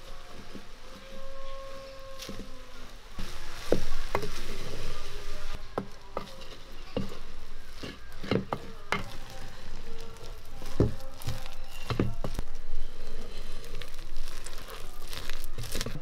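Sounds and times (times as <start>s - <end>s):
vegetables sizzling: 0.0s - 16.0s
wooden spatula knocking on pot: 5.7s - 9.3s.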